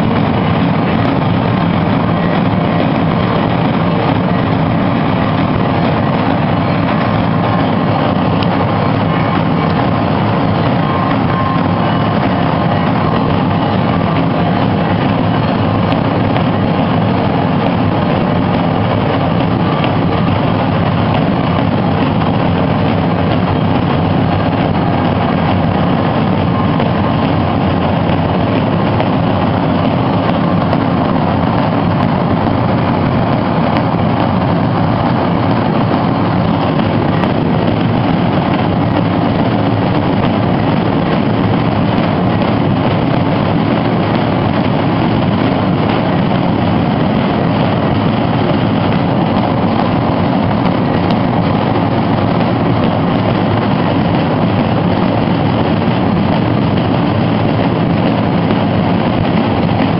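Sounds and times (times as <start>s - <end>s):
bass drums rumbling: 0.0s - 59.9s.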